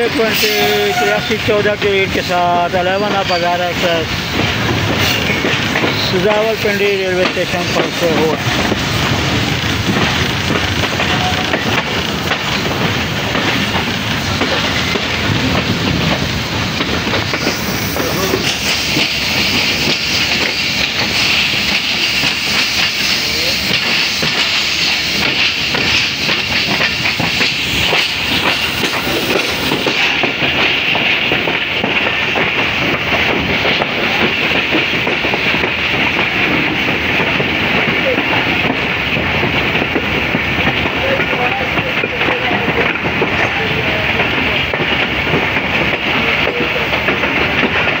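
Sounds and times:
train wheels rumbling and rattling: 0.0 - 48.0.

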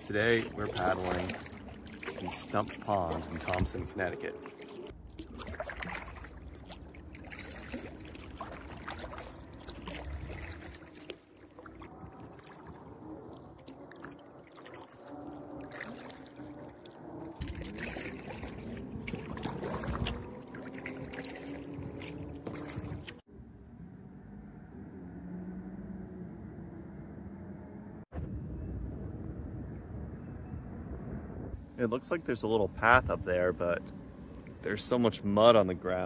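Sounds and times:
paddle strokes splashing: 0.0 - 23.2
water trickling off paddle: 0.0 - 23.2.

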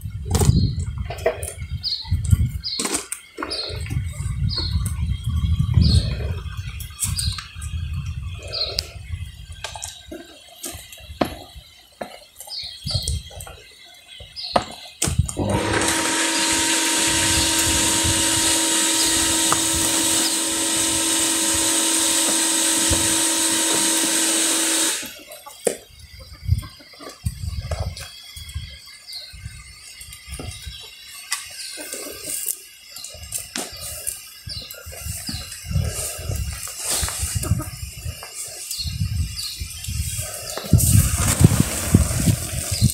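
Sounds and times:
loud rushing hiss with hum: 15.3 - 25.2, 33.2 - 42.9.

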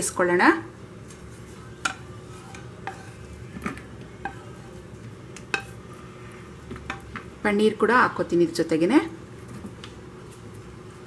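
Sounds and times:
wooden spatula tapping a pan: 1.8 - 4.5.

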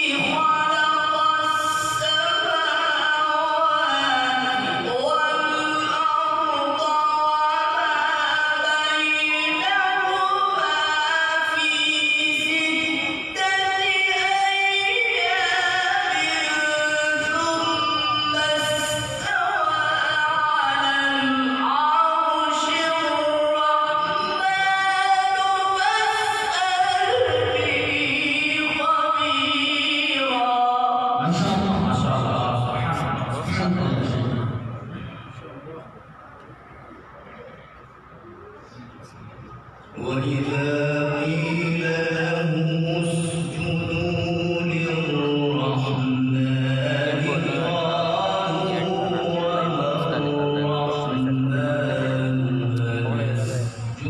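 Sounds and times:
man chanting melodic recitation: 0.0 - 54.0.

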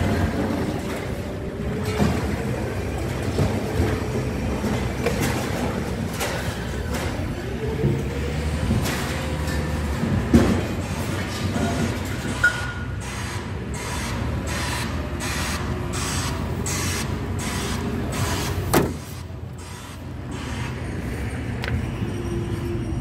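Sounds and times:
low mechanical rumble: 0.0 - 23.0.

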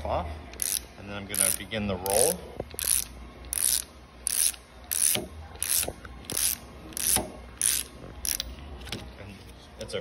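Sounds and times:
socket wrench ratchet clicking: 0.5 - 8.5.

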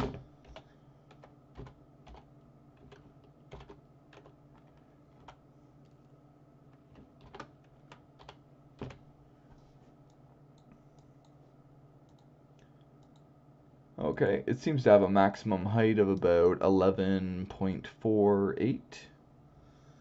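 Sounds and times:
computer keyboard keystrokes: 0.4 - 5.4.

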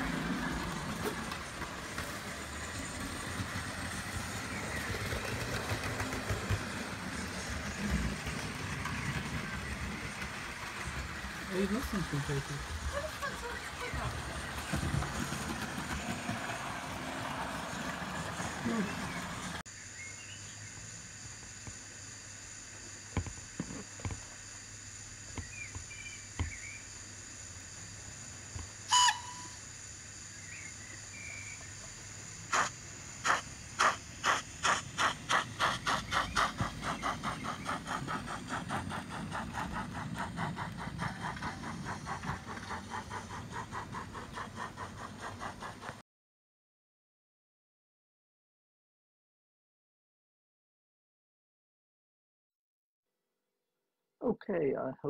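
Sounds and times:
steam exhaust chuffs: 0.0 - 19.6, 31.9 - 46.0
model locomotive steam hiss: 0.0 - 46.0
short train whistle: 28.9 - 29.6.

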